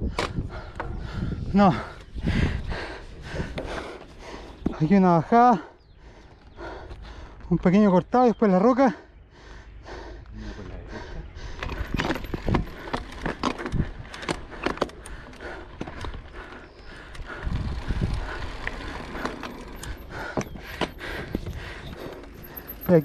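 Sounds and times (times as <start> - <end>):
bike knocks and rattles: 11.6 - 23.0.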